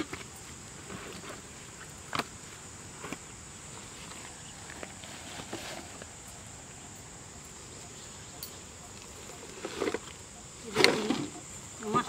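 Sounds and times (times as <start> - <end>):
handling knocks and rustles: 0.0 - 6.3
high-pitched insect drone: 3.3 - 12.0.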